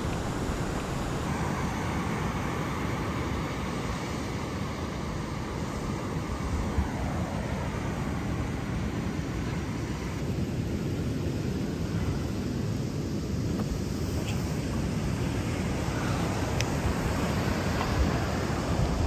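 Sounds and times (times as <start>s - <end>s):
wind buffeting microphone: 0.0s - 3.0s, 14.5s - 19.0s
breaking surf: 0.0s - 10.2s.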